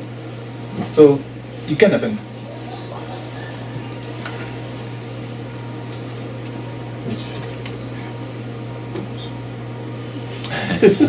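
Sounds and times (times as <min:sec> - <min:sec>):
low hum: 0:01.3 - 0:09.4.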